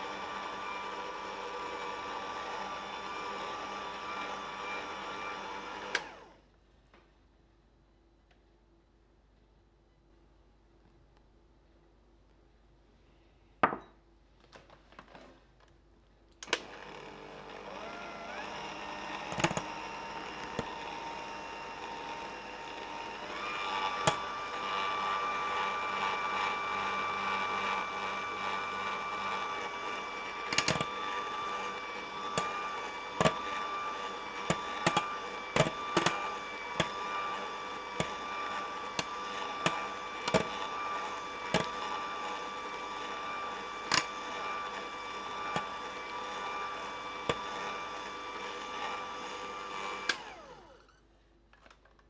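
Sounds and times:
electric hand mixer whine: 0.0s - 6.4s, 16.5s - 51.0s.

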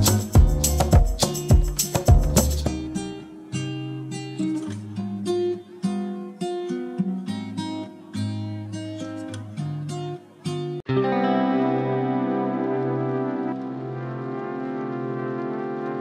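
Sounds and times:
percussive beat: 0.0s - 3.0s
acoustic guitar melody: 0.0s - 16.0s.

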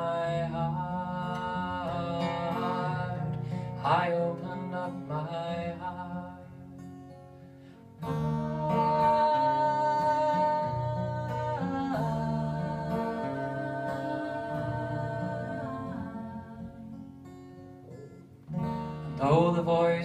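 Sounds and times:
acoustic guitar: 0.0s - 20.0s
person singing aah: 8.1s - 17.0s.

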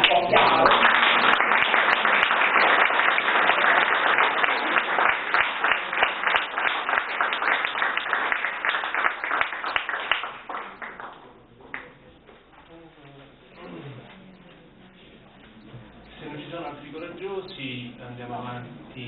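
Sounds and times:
audience applause: 0.0s - 11.9s.

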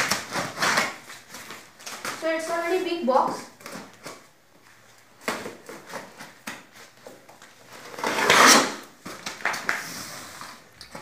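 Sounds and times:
knife scraping packing tape: 0.0s - 2.2s, 7.7s - 8.9s.

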